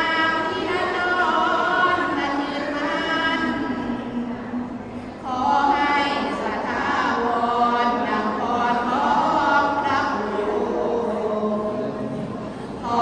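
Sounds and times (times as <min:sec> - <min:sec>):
women chanting: 0:00.0 - 0:12.1, 0:12.8 - 0:13.0.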